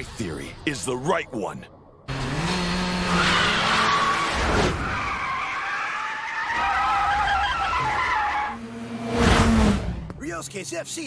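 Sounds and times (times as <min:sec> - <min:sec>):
race car engines revving high: 0:02.1 - 0:05.3
tyre squeal and skidding: 0:03.0 - 0:08.6.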